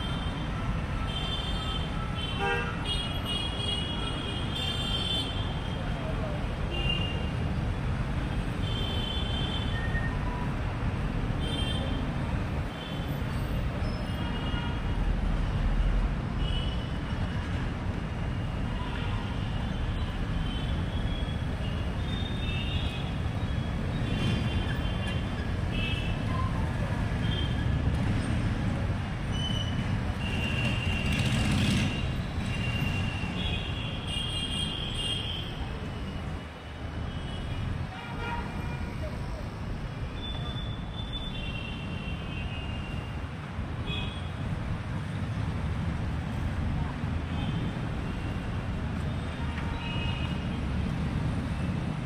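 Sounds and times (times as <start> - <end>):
passing vehicles rumbling: 23.0 - 34.0, 50.4 - 52.0.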